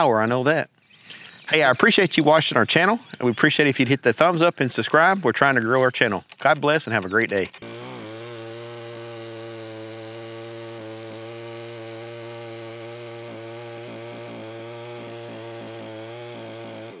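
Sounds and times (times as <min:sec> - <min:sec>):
chainsaw engine running: 0:06.9 - 0:17.0.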